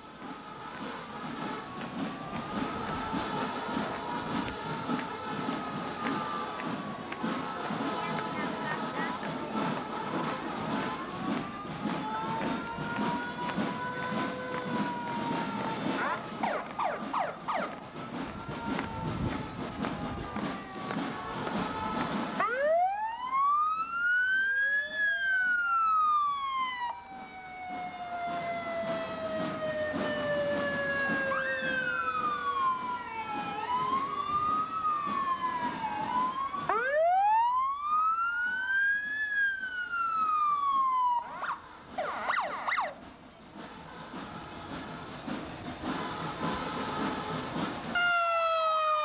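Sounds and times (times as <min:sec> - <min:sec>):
ambulance sirens wailing: 0:00.0 - 0:49.0
traffic noise: 0:00.0 - 0:49.0.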